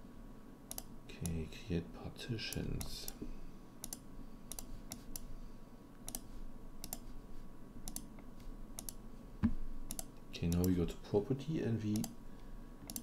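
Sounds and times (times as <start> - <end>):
faint steady hum: 0.0 - 13.0
computer mouse clicking: 0.7 - 1.4, 3.8 - 5.3, 6.0 - 7.1, 7.8 - 9.0, 9.9 - 10.8, 11.9 - 12.2.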